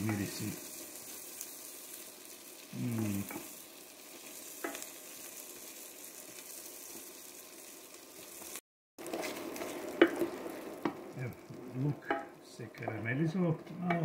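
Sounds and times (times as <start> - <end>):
vegetables sizzling in oil: 0.0 - 14.0
wooden spoon stirring: 9.0 - 12.4.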